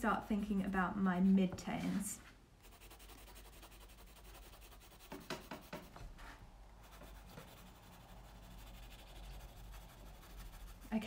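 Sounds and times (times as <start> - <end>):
pencil scratching on paper: 2.6 - 6.0, 6.8 - 11.0.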